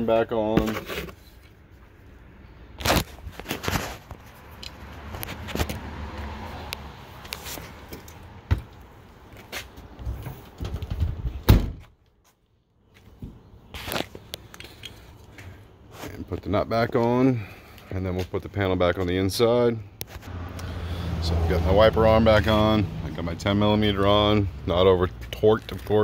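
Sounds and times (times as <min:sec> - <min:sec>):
loud thunk: 0:11.5 - 0:11.8.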